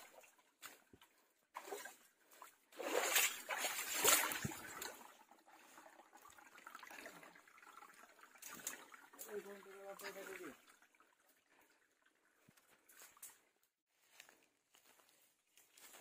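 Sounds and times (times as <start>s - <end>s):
footsteps splashing through water: 0.0s - 5.1s, 8.3s - 16.0s
rocky stream trickling: 0.0s - 13.7s.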